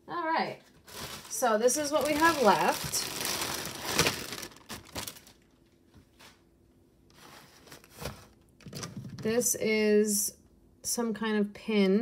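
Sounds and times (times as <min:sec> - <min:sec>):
plastic bag crinkling: 0:00.7 - 0:05.7.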